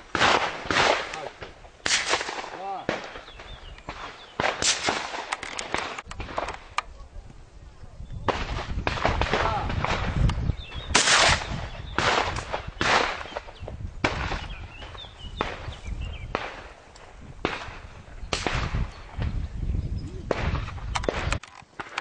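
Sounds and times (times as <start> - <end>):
shotgun shots with echo: 0.1 - 6.5, 10.8 - 16.7, 17.4 - 18.9.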